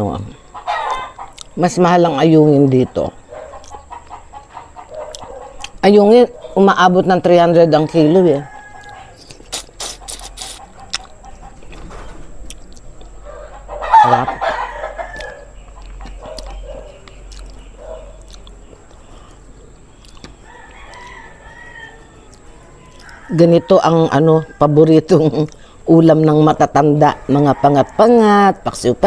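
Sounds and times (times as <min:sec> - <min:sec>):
rooster crowing: 0:00.4 - 0:01.4, 0:07.3 - 0:09.4, 0:13.2 - 0:16.9, 0:20.4 - 0:24.9, 0:27.0 - 0:28.8.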